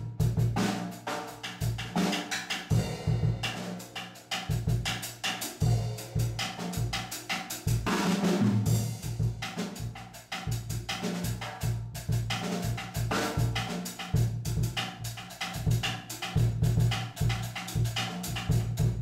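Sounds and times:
drum kit solo: 0.0 - 19.0.

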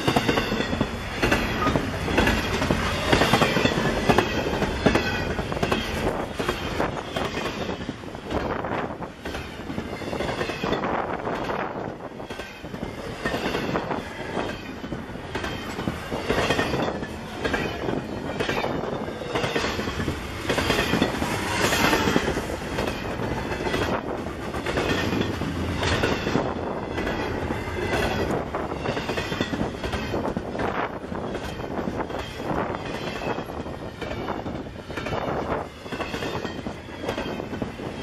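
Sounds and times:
freight train rolling past: 0.0 - 38.0
wheels clicking over rail joints: 0.0 - 38.0.

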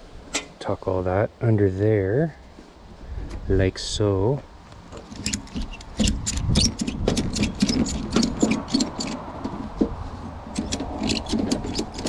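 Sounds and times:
sharp clicks and light knocks: 4.7 - 12.0.

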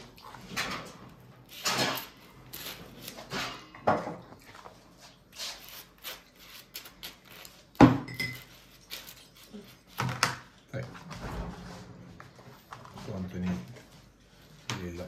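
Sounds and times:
food and dishes handled: 7.8 - 13.9.

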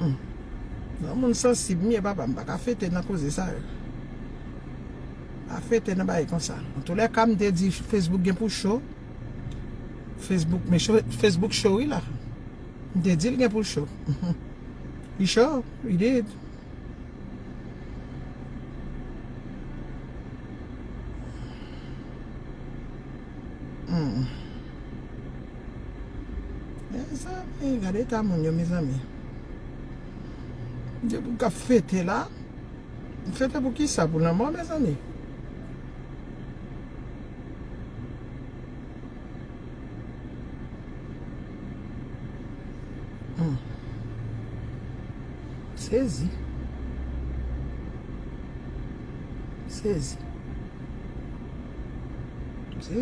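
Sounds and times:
car cabin hum and rumble: 0.0 - 53.0
woman vocal sound: 23.9 - 24.5.

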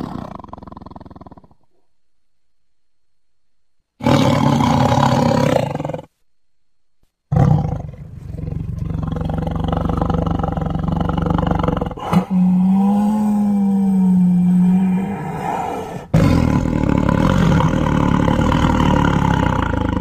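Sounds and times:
tiger growling: 4.0 - 6.1, 7.3 - 20.0
tiger roaring: 4.0 - 6.1, 7.3 - 20.0.

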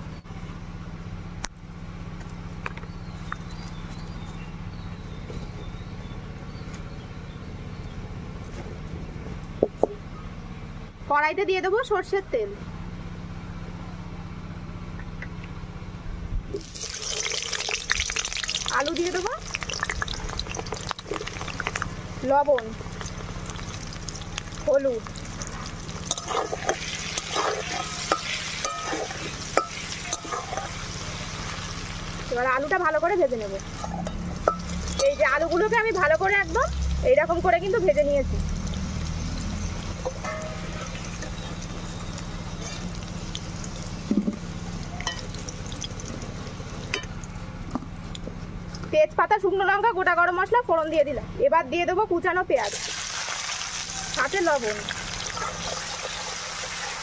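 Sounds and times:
low fire rumble: 16.0 - 49.0
wood fire crackling: 16.6 - 32.4, 38.5 - 47.4
potatoes sizzling in oil: 16.6 - 37.0, 37.6 - 47.1, 52.6 - 57.0
steady low hum: 17.7 - 52.6
metal spatula scraping pan: 26.1 - 30.9.

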